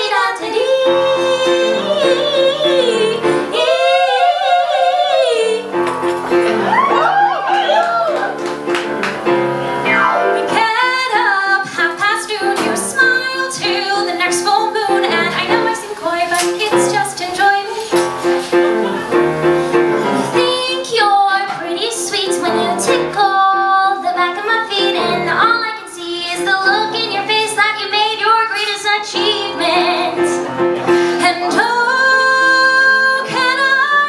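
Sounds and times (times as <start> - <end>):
women singing: 0.0 - 5.8, 10.4 - 18.0, 20.3 - 30.5, 31.1 - 34.0
piano accompaniment: 0.0 - 34.0.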